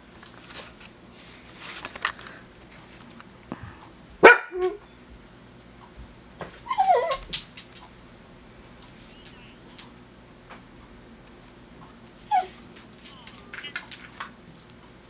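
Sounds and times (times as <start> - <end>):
dog barking: 4.2 - 4.8
dog whining: 6.6 - 7.3, 12.2 - 13.4.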